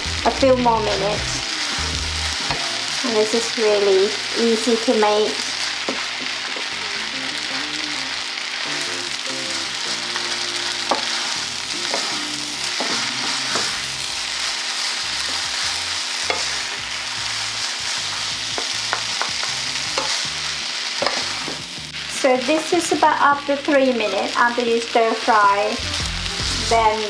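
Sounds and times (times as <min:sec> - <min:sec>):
noodles sizzling in a frying pan: 0:00.0 - 0:27.0
spatulas scraping a pan: 0:10.9 - 0:13.9, 0:15.2 - 0:16.8, 0:21.0 - 0:21.7.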